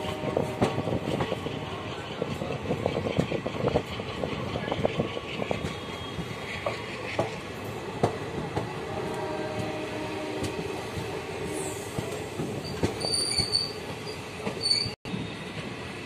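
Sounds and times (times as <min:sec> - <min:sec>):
clacks over rail joints: 0:00.0 - 0:09.8
train wheels rumbling on rails: 0:00.0 - 0:16.0.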